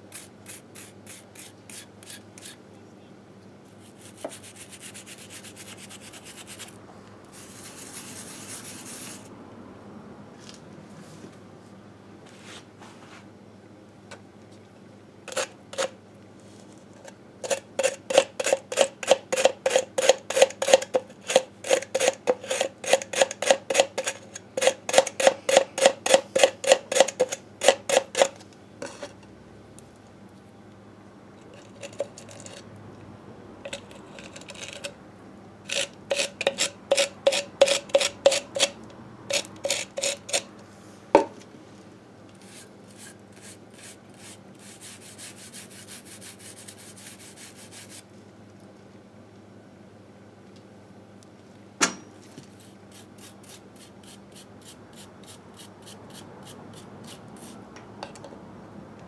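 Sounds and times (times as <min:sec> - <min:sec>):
brush scrubbing metal: 0:03.8 - 0:06.7, 0:42.4 - 0:48.0.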